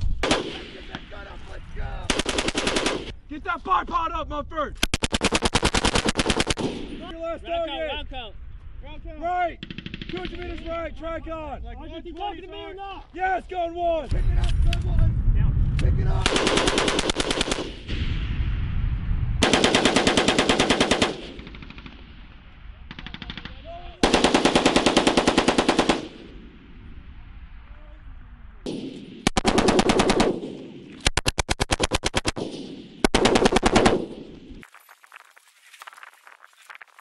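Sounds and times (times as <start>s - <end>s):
machine gun firing bursts: 2.1s - 3.1s, 4.8s - 6.9s, 9.6s - 10.4s, 16.2s - 17.9s, 19.4s - 22.1s, 22.9s - 26.3s, 28.7s - 34.3s.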